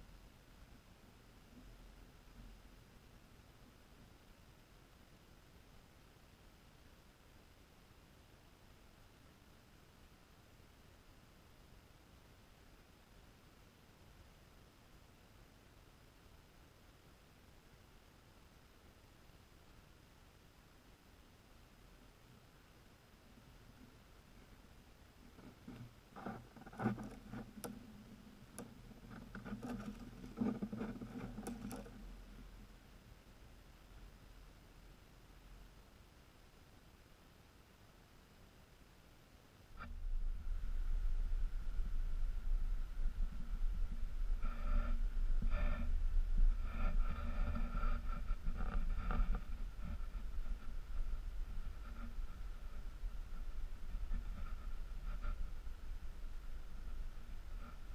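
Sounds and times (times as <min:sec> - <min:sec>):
wind rumble on microphone: 0:39.8 - 0:57.9.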